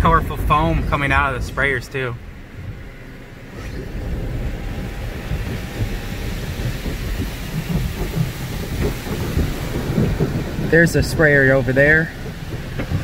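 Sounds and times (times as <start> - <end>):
water spraying onto glass: 3.9 - 13.0.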